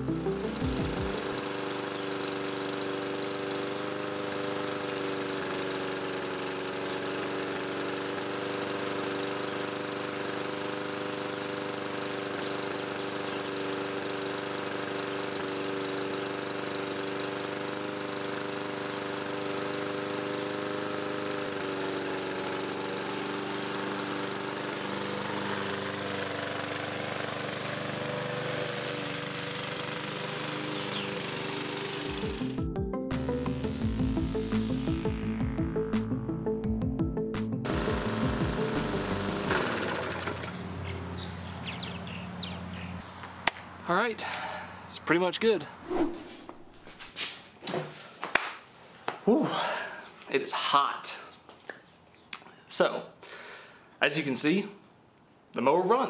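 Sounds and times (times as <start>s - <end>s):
lawn mower engine running: 0.0s - 35.0s, 37.6s - 45.0s.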